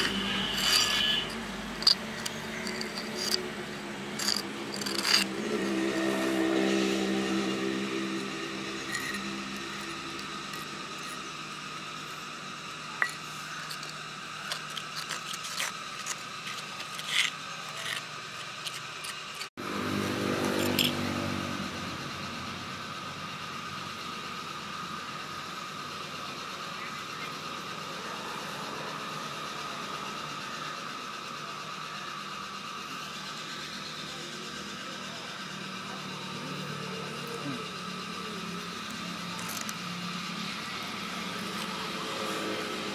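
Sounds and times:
spoon scraping clay pot: 0.0 - 6.3, 8.0 - 11.6, 13.0 - 19.5, 20.5 - 20.9
steady background noise: 0.0 - 42.9.

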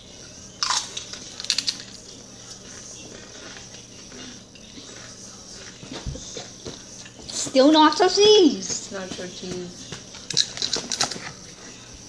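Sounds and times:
chips crunching while chewed: 0.6 - 7.2, 10.1 - 11.9.

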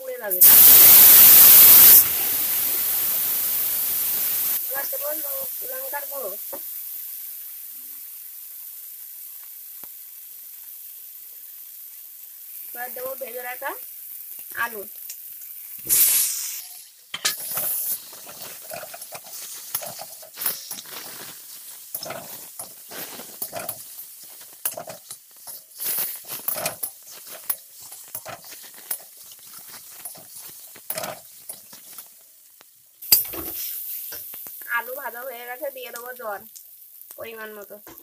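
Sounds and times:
light sizzle: 0.0 - 38.0
metal spatula scraping a pan: 16.4 - 32.0.

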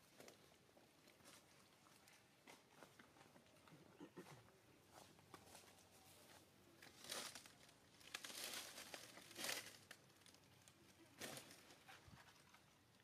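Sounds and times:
dry leaves rustling and crackling: 6.8 - 12.7.

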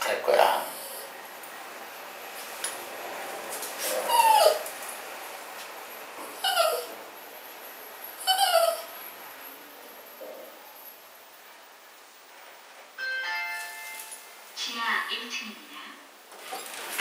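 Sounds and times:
small dog whining: 4.0 - 4.7, 6.4 - 7.0, 8.2 - 8.9.

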